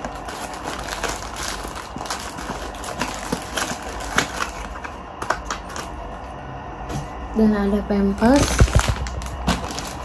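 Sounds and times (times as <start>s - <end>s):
plastic wrapping crinkling: 0.0s - 6.0s, 8.2s - 10.0s.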